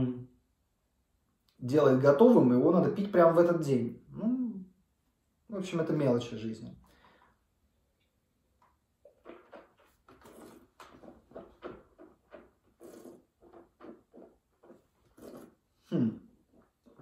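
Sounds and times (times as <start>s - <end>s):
wet lip and tongue smacks: 8.6s - 15.6s.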